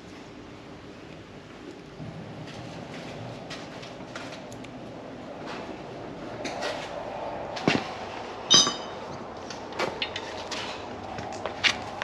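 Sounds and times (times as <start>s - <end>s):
ringing clink of metal on metal: 8.5s - 9.0s
metal tools clanking: 8.5s - 9.2s.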